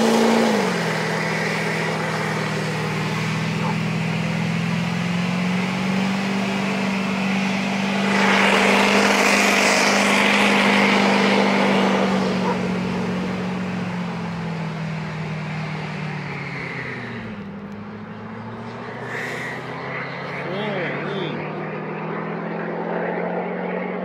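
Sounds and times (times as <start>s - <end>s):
vehicle engine droning: 0.0s - 24.0s
rushing noise: 7.0s - 12.4s, 18.8s - 21.6s.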